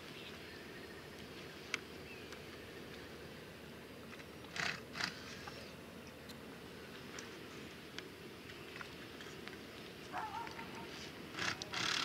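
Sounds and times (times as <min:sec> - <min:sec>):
faint outdoor background noise: 0:00.0 - 0:12.0.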